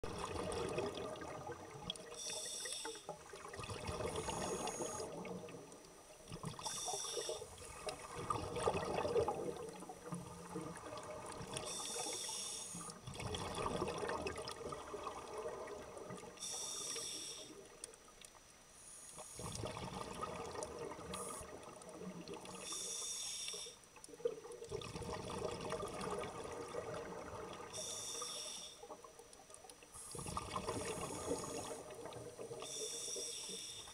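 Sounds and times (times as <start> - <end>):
exhaled bubbles rushing: 0.0 - 2.0, 3.2 - 5.6, 7.6 - 11.6, 13.0 - 16.3, 19.4 - 22.6, 24.2 - 27.7, 30.2 - 32.6
regulator inhalation hiss: 2.1 - 3.1, 4.2 - 5.2, 6.6 - 7.6, 11.6 - 13.0, 16.4 - 17.6, 22.6 - 23.8, 27.8 - 28.9, 31.0 - 31.9, 32.6 - 33.9.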